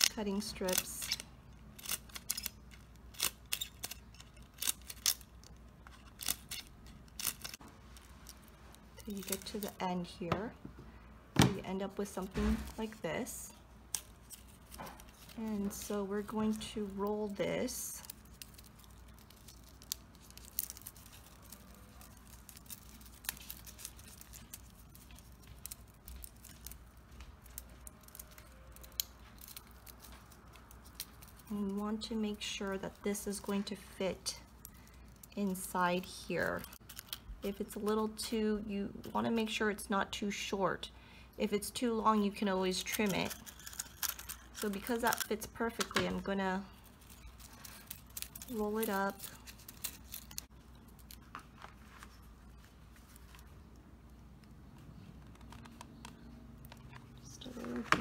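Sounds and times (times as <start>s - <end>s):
scissors snipping plastic: 0.0s - 7.6s, 42.7s - 46.3s, 47.1s - 51.2s
low steady hum: 0.0s - 58.0s.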